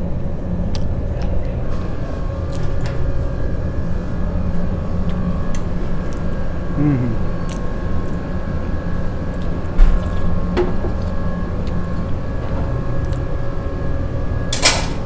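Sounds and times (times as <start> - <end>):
ventilation fan humming: 0.0 - 15.0.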